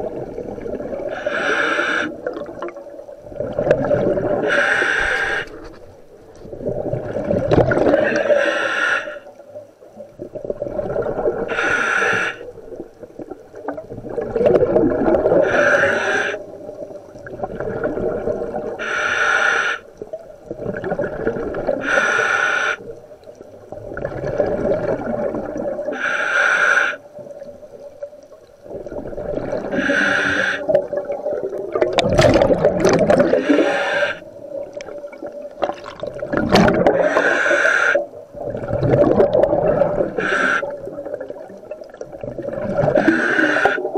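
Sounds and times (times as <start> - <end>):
gurgling exhaled bubbles: 0.0 - 5.8, 6.4 - 8.6, 10.0 - 18.9, 20.0 - 22.1, 22.7 - 26.0, 26.9 - 43.9
hissing regulator inhalation: 1.1 - 2.2, 4.4 - 5.7, 8.0 - 9.3, 11.5 - 12.5, 15.4 - 16.4, 18.8 - 19.9, 21.8 - 22.9, 25.9 - 27.1, 29.7 - 30.8, 33.2 - 34.3, 36.9 - 38.1, 40.0 - 40.8, 43.0 - 43.9.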